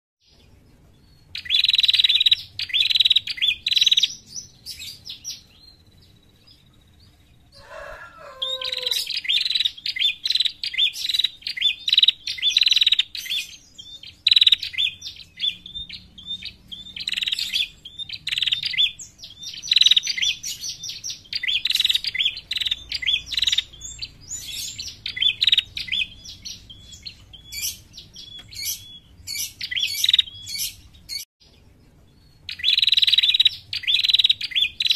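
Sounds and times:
low bird call: 7.5s - 10.2s
bird chirping sharply: 7.6s - 31.3s, 32.3s - 34.9s.

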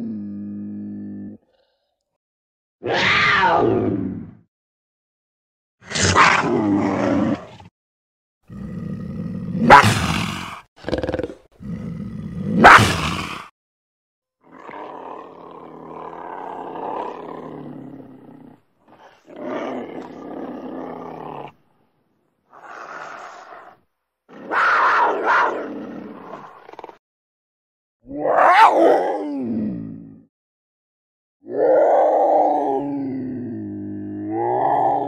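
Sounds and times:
cougar snarling: 8.5s - 13.5s, 14.5s - 21.6s, 22.5s - 27.0s
cougar growling calls: 14.5s - 21.6s, 22.5s - 27.0s.

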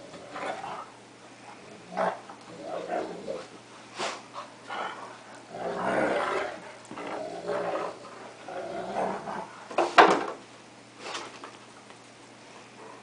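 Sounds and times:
dogs growling in play: 0.0s - 10.0s.

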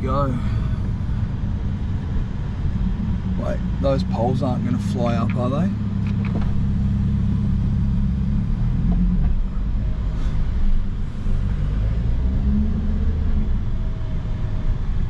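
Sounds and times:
car engine from inside cabin: 0.0s - 15.0s.

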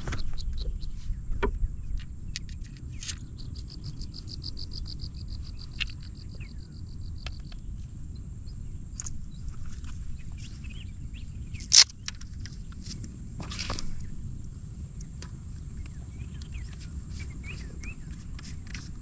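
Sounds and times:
sharp clicks: 11.7s - 12.3s.

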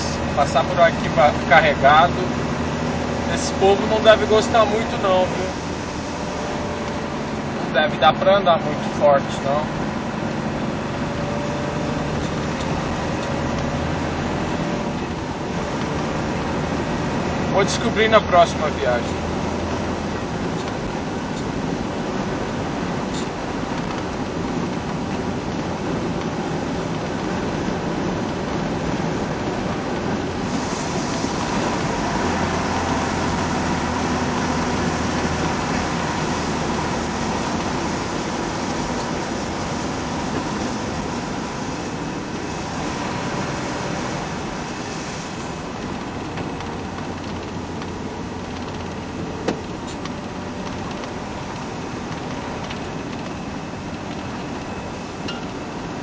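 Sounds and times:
tyres hissing on wet pavement: 0.0s - 6.6s, 29.9s - 53.1s
low engine drone: 0.0s - 56.0s.

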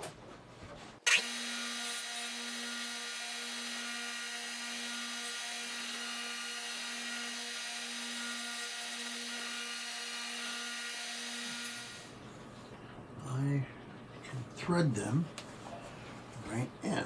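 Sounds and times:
sander grinding screws: 1.1s - 12.1s
sander humming: 1.1s - 12.1s.

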